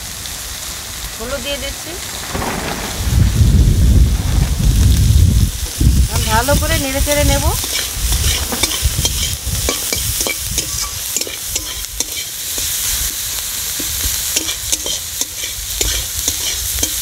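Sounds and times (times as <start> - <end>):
vegetables sizzling in hot oil: 0.0 - 2.2, 4.6 - 17.0
utensil scraping and tapping pan: 7.6 - 12.7, 13.8 - 17.0.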